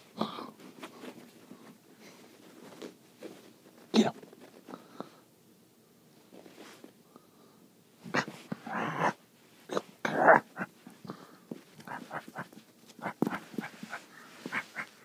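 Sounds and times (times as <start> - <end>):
scuffling: 0.6 - 4.8, 10.4 - 15.0
prairie dog calls: 11.8 - 15.0.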